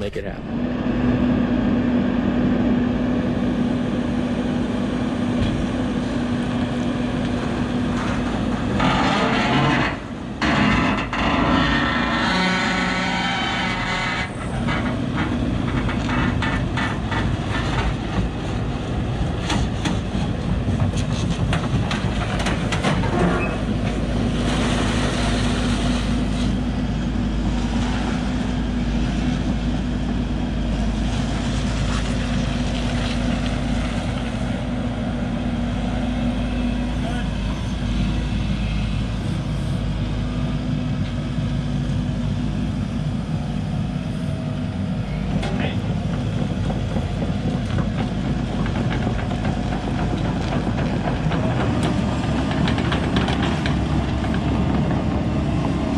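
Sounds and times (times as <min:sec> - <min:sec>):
diesel engine running: 0:00.0 - 0:55.9
tracks clanking and knocking: 0:07.2 - 0:26.6, 0:45.3 - 0:55.9.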